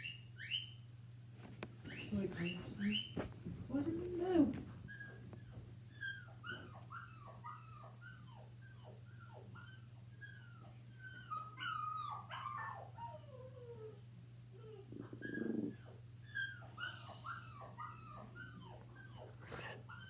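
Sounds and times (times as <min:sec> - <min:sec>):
dog whimpering on tv: 0:04.6 - 0:20.0.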